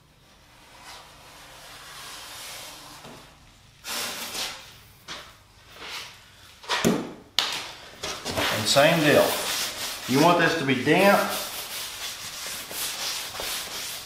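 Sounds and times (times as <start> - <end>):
board scraping rubs: 0.5 - 4.7, 8.2 - 10.6.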